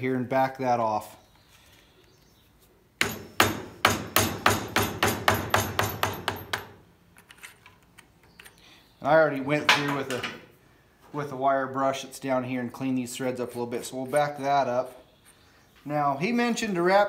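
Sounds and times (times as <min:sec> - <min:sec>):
hammer striking steel punch: 0:03.0 - 0:06.7.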